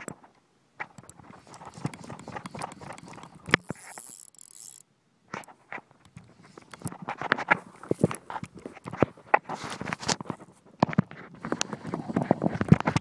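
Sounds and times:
hand clicking and tapping fly reel: 0.8 - 9.0.

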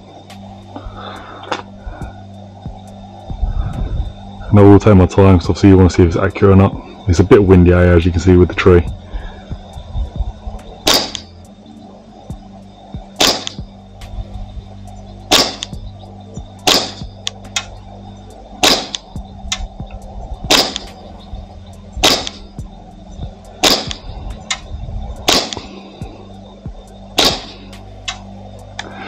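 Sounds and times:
airsoft pistol shots: 10.9 - 11.2, 13.2 - 13.6, 15.3 - 15.7, 16.7 - 17.0, 18.6 - 19.0, 20.5 - 20.8, 22.0 - 22.4, 23.6 - 24.0, 25.3 - 25.7, 27.2 - 27.5.

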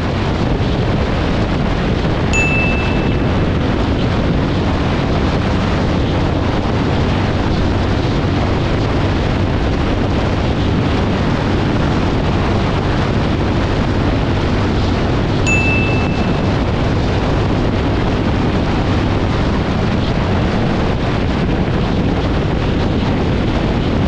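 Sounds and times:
wind rush over microphone: 0.0 - 24.0
motorcycle engine droning: 2.4 - 6.4.

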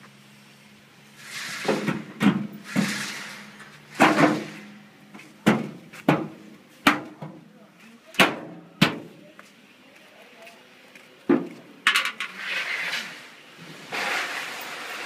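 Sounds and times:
metal sliding and scraping: 1.1 - 6.0, 11.9 - 15.0
heavy metal clunk: 1.6 - 4.8.

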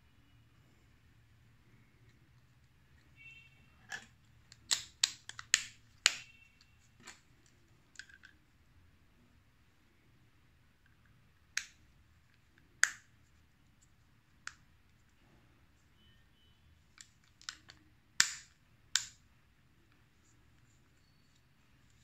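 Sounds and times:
plastic clicks and snaps: 3.9 - 6.3, 10.8 - 13.1, 16.9 - 19.2.

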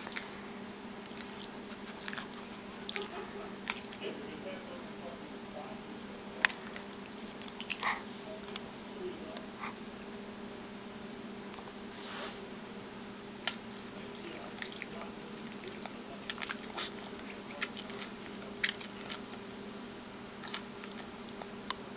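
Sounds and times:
dog licking and lip smacking: 0.0 - 0.3, 1.0 - 4.0, 6.4 - 8.6, 13.4 - 19.4, 20.4 - 21.5.

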